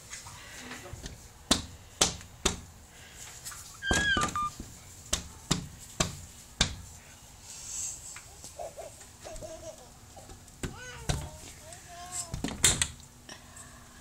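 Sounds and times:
child squealing: 0:03.8 - 0:04.5.

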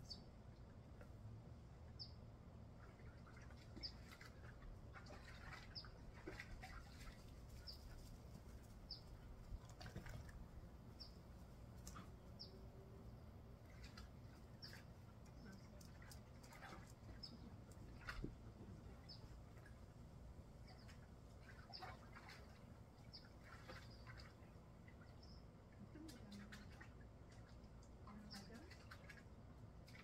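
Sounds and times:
water splashing and dripping: 0:02.8 - 0:10.5, 0:13.6 - 0:18.4, 0:20.7 - 0:25.1, 0:25.8 - 0:30.0.

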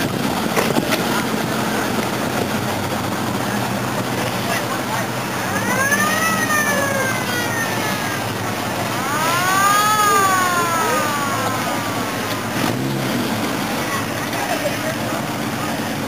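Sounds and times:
cars driving past: 0:08.0 - 0:16.0
siren wailing: 0:08.9 - 0:12.4.

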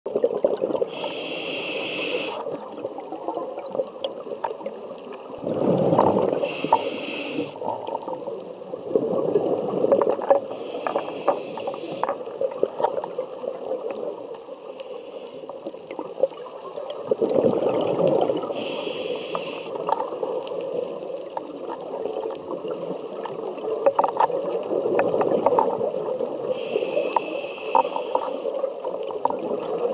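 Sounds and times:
gurgling exhaled bubbles: 0:00.1 - 0:14.2, 0:15.9 - 0:29.9
regulator inhale hiss: 0:00.8 - 0:02.7, 0:06.2 - 0:07.7, 0:10.4 - 0:12.4, 0:14.6 - 0:15.8, 0:18.4 - 0:19.9, 0:26.4 - 0:28.7.

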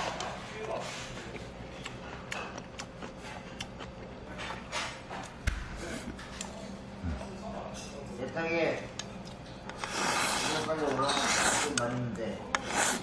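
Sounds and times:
chewing: 0:00.0 - 0:06.6
steady low hum: 0:00.0 - 0:13.0.

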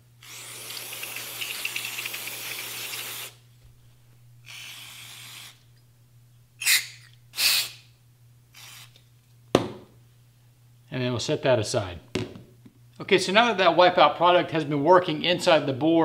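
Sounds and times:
aerosol can spraying: 0:00.2 - 0:03.4, 0:07.4 - 0:07.8, 0:08.6 - 0:09.0.

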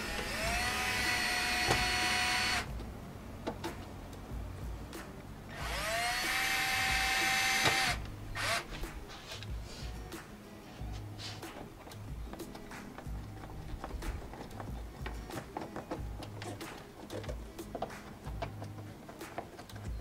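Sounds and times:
power screwdriver whining: 0:00.0 - 0:02.7, 0:05.5 - 0:08.8.

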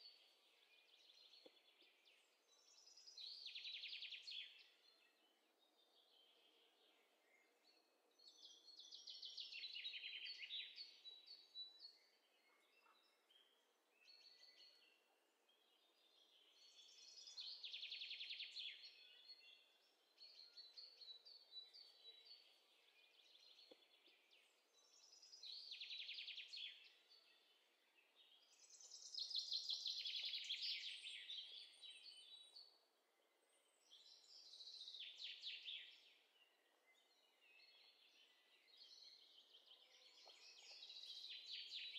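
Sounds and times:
songbird chirping: 0:00.0 - 0:41.9.

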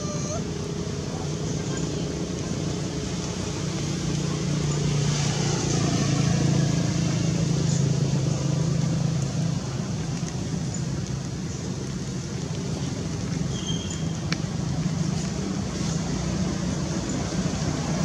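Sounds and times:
engine hum: 0:00.0 - 0:18.0.

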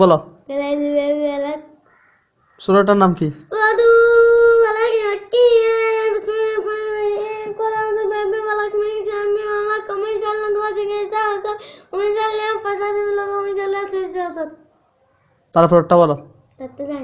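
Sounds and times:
child chanting: 0:00.5 - 0:01.8, 0:03.5 - 0:14.7, 0:16.6 - 0:17.0
child breathing: 0:11.5 - 0:12.0.

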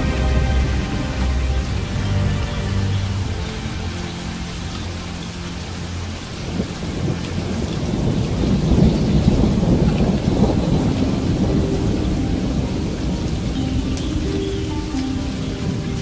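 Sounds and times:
thunder rolling: 0:00.0 - 0:03.4, 0:06.5 - 0:14.4
steady rain: 0:00.0 - 0:16.0.

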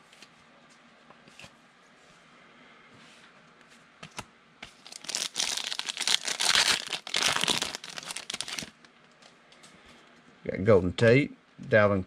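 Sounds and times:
wrapper tearing and crinkling: 0:04.7 - 0:08.9.

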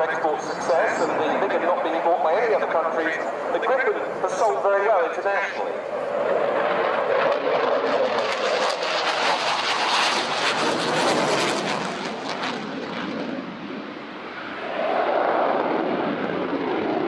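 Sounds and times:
jet engine crackling roar: 0:00.0 - 0:17.0.

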